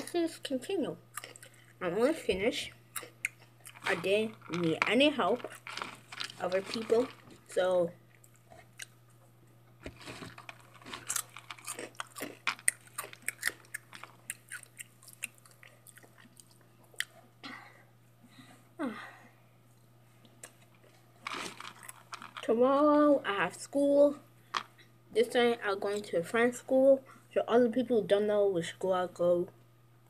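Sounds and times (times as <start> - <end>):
crisp crunching and chewing: 1.1 - 1.7, 2.9 - 9.0, 9.8 - 17.2, 20.3 - 22.4.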